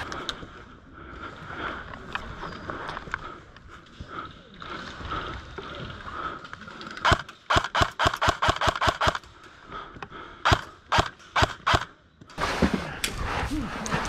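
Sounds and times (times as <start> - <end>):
airsoft rifle shots: 7.0 - 9.2, 10.4 - 11.9.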